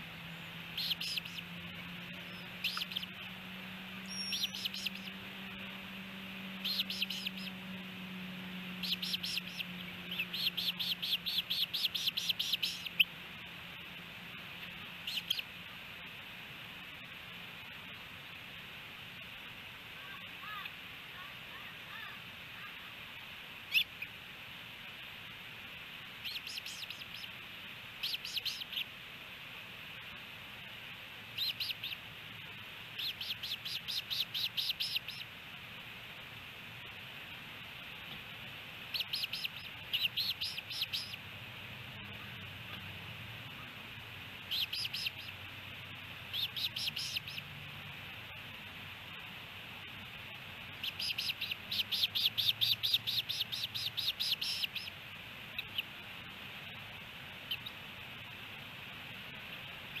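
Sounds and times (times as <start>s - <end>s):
osprey whistled chirps: 0.3s - 7.8s, 8.7s - 13.2s, 15.0s - 15.5s, 23.7s - 24.1s, 26.2s - 27.3s, 28.0s - 28.9s, 31.3s - 32.0s, 33.0s - 35.3s, 38.9s - 41.2s, 44.4s - 45.4s, 46.2s - 47.5s, 50.7s - 55.9s.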